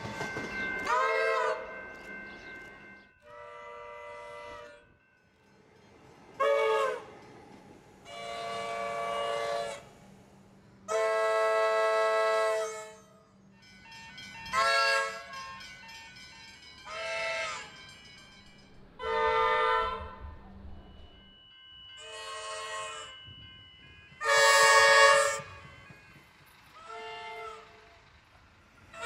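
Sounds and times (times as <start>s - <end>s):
low rail noise: 0.0s - 29.0s
train air horn blasts: 3.2s - 4.9s, 6.4s - 7.1s, 8.0s - 9.9s, 10.8s - 13.2s, 14.5s - 15.3s, 19.0s - 20.4s, 24.2s - 25.6s, 26.8s - 28.0s.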